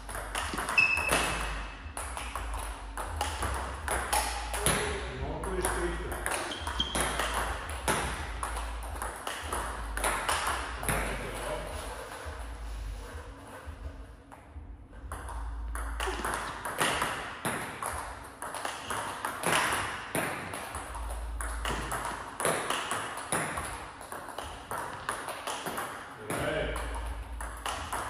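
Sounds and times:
table tennis ball pings: 0.0s - 11.4s, 15.1s - 28.0s.

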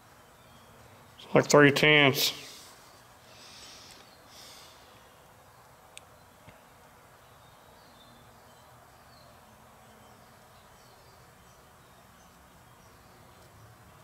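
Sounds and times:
soft hisses: 2.2s - 5.8s.

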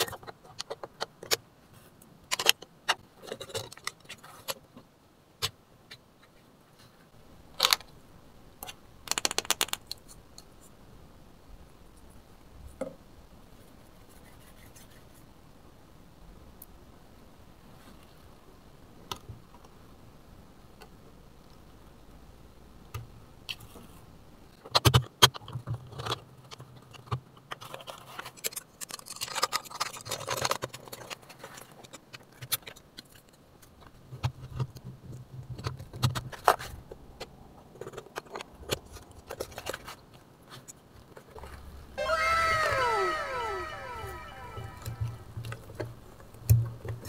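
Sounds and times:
plastic toy parts clicking and rattling: 0.0s - 1.4s, 2.2s - 4.6s, 7.6s - 7.9s, 8.6s - 10.5s, 24.6s - 34.8s.

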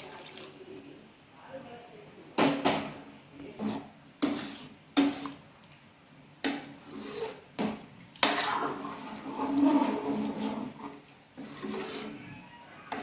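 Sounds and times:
ladle stirring and scraping: 3.4s - 13.0s.

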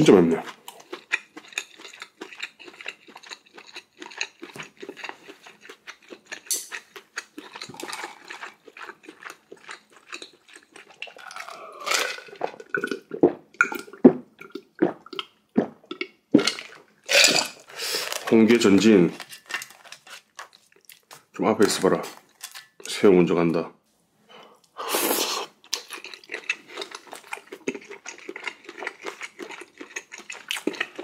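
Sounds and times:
wet chewing and mouth smacks: 0.4s - 16.8s, 25.6s - 31.0s
slurping noodles: 24.8s - 25.6s.

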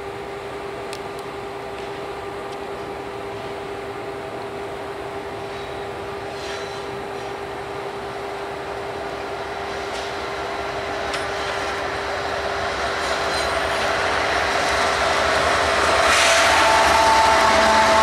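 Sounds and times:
diesel locomotives approaching: 0.0s - 18.0s
steady whine: 13.1s - 18.0s.

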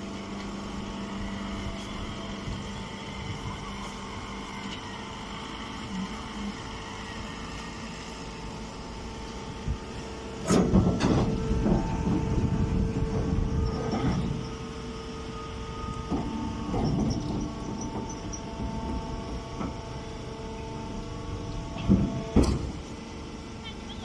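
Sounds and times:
hydraulic power unit humming: 0.0s - 24.0s
loud machine clatter: 10.4s - 14.6s, 15.8s - 20.1s.

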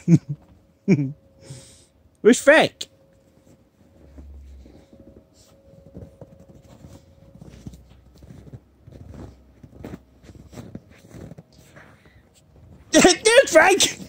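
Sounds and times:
footsteps crunching in snow: 3.3s - 14.0s.

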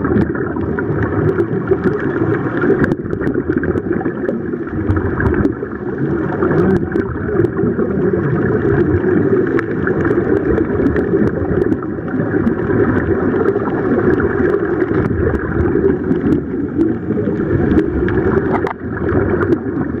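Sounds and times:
small underwater clicks: 0.0s - 20.0s
underwater rushing and gurgling: 0.0s - 20.0s.

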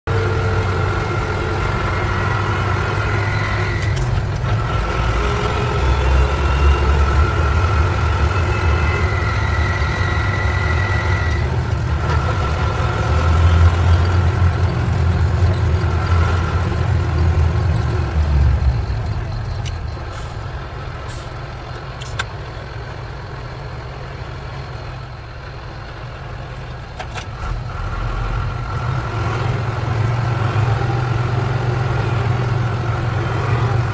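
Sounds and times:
truck engine rumbling: 0.0s - 33.9s
sharp clicks: 21.2s - 22.4s.

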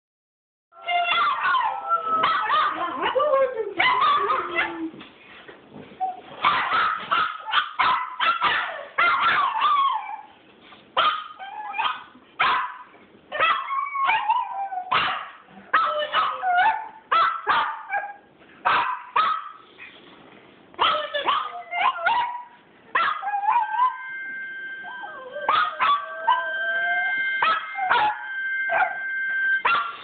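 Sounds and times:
dogs barking and yipping: 0.9s - 3.2s, 3.8s - 4.9s, 6.2s - 10.3s, 11.0s - 12.8s, 13.4s - 19.6s, 20.8s - 24.0s, 24.9s - 29.0s, 29.6s - 30.0s.

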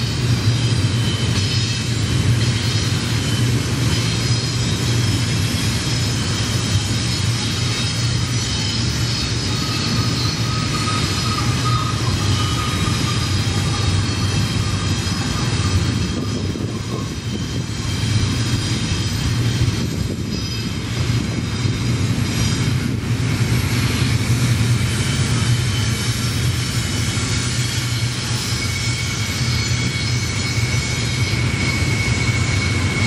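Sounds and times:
high wheel whines: 0.0s - 33.0s
steel wheels rumbling on rail: 0.0s - 33.0s.

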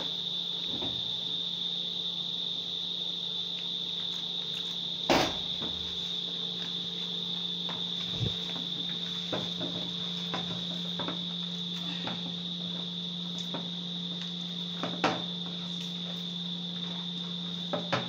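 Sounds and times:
low hum: 8.0s - 8.6s
high-pitched whine: 8.0s - 8.8s.

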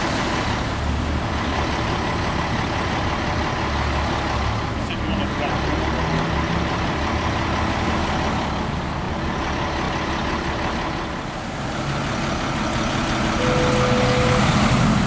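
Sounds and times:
road traffic: 0.0s - 15.0s
truck engines idling: 0.0s - 15.0s
brief steady tone: 13.4s - 14.6s.

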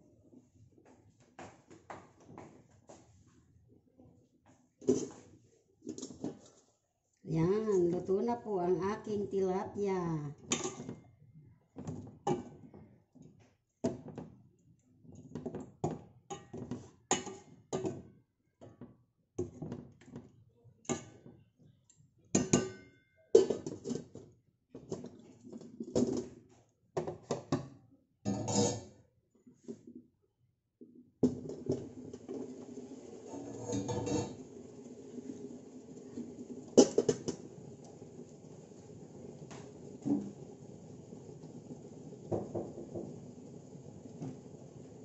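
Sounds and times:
metal spoon scraping steel pan: 28.3s - 28.9s, 33.3s - 34.5s
steel lid on pan: 28.3s - 28.9s, 33.0s - 35.9s.

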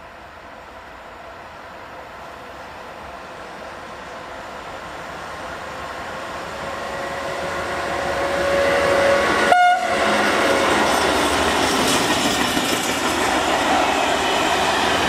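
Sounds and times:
electric locomotive hauling train: 0.0s - 15.0s
train horn toot: 7.0s - 10.2s.

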